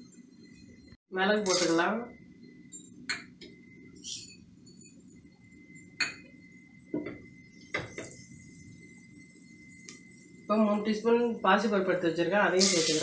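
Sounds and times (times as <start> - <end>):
steady low hum: 0.0 - 12.6
faint high whine: 0.0 - 13.0
steel bowls and spoon clinking: 1.3 - 1.9.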